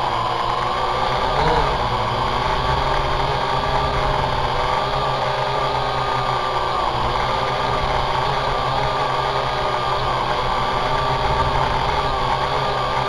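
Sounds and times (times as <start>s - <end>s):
drone propellers whining: 0.0s - 13.0s.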